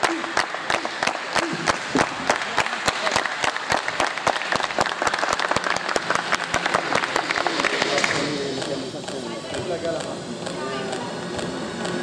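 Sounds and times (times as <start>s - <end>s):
spectators clapping: 0.0s - 9.2s.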